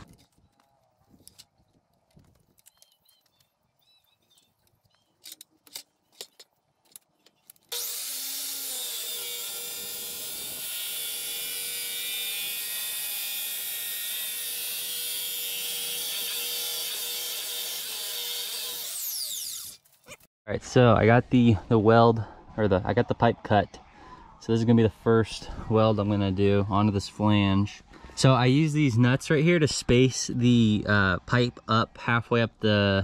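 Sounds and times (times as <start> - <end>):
miter saw cutting metal pipe: 7.7 - 19.8.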